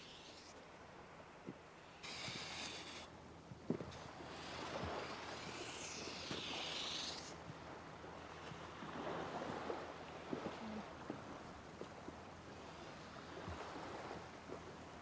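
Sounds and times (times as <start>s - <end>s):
stick scraping through damp sand: 0.0s - 0.6s, 1.9s - 3.1s, 3.9s - 7.4s
background hiss: 0.0s - 8.0s.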